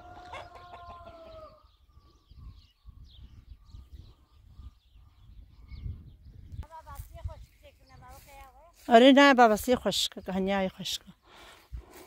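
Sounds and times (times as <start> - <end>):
chickens calling: 0.0 - 5.8
small birds chirping: 0.3 - 12.0.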